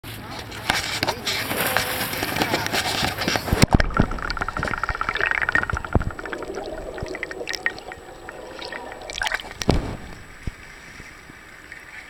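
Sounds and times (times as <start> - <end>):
muffled underwater gurgling: 3.5 - 10.6
sharp water splashes: 3.5 - 10.8.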